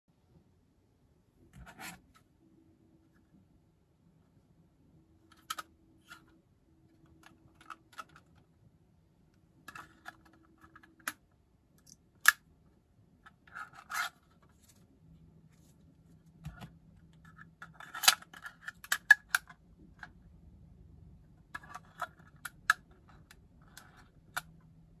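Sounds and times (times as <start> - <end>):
plastic and cards scraping: 9.7 - 11.1, 13.3 - 14.9.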